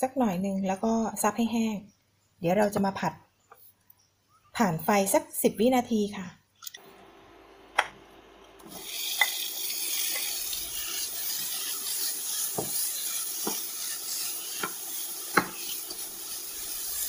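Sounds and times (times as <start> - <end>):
vegetables sizzling in a pan: 8.6 - 17.0
wooden spatula knocking on pan: 12.6 - 12.8, 13.4 - 13.7, 14.6 - 15.6.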